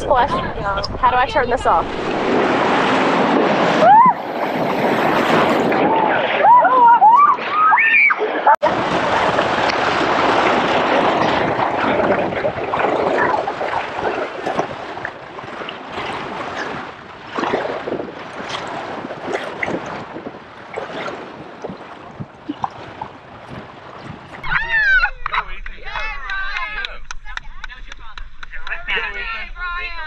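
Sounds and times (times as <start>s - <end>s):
sharp water splashes: 1.7s - 25.4s.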